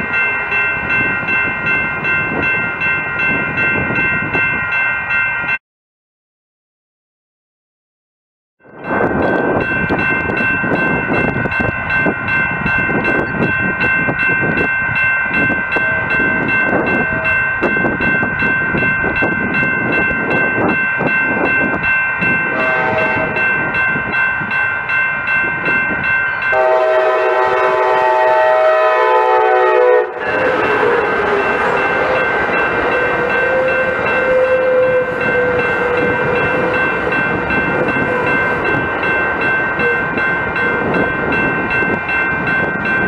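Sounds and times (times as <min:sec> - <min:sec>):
crossing warning bell ringing: 0:00.0 - 0:05.6, 0:08.6 - 0:43.0
train horn: 0:15.8 - 0:16.3, 0:22.4 - 0:23.5, 0:26.5 - 0:38.7.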